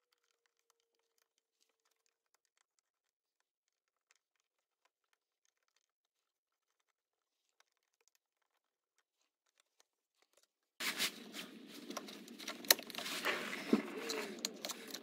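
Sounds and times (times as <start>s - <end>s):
rustling handling noise: 10.4s - 15.0s.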